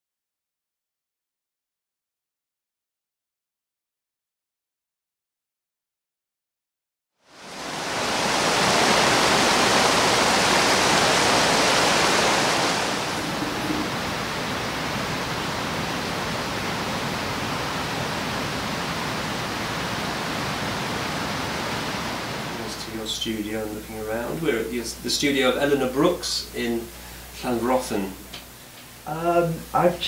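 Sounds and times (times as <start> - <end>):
stream rushing over stones: 7.3 - 22.7.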